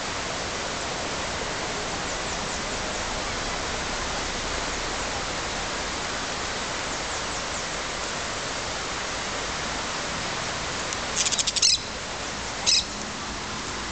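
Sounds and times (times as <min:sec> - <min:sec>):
steady hiss: 0:00.0 - 0:13.9
parakeet chattering calls: 0:11.2 - 0:11.9, 0:12.6 - 0:13.0.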